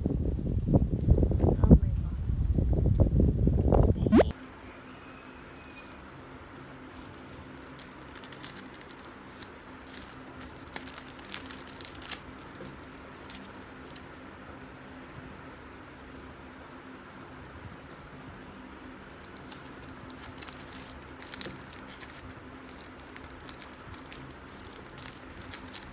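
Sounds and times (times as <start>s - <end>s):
faint steady hum: 0.0s - 25.9s
plastic sleeves crinkling: 5.7s - 14.1s, 17.8s - 25.9s.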